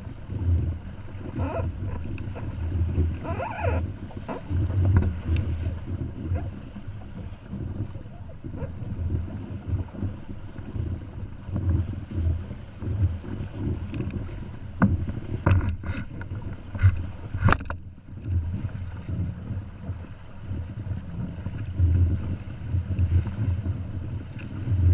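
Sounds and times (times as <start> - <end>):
water rushing and slapping hulls: 0.0 - 24.9
water splashes: 0.0 - 24.9
wind buffeting microphone: 0.0 - 24.9.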